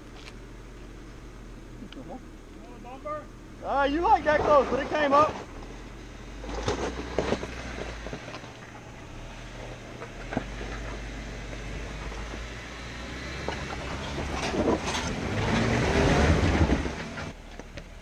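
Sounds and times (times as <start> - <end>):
car engine pulling at low speed: 0.0 - 18.0
tyres scraping over rock: 4.0 - 12.5, 13.3 - 17.4.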